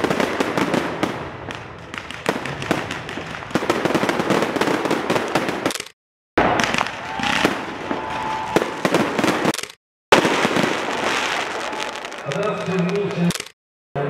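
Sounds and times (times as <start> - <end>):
fireworks bangs and crackles: 0.0 - 5.7, 6.4 - 13.3
faint firework whistle: 6.4 - 9.0.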